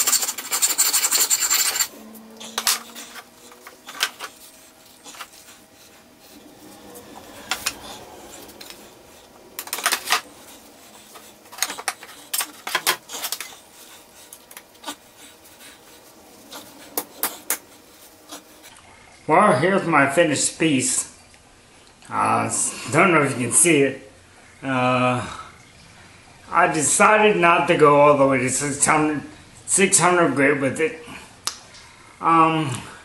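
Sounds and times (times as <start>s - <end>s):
sanding rasp on steel: 0.0s - 18.7s.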